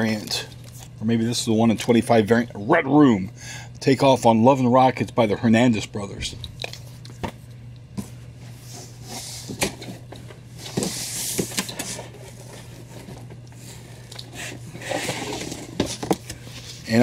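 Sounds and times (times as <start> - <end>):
steady low hum: 0.0 - 17.0
cardboard rustling and sliding: 8.5 - 17.0.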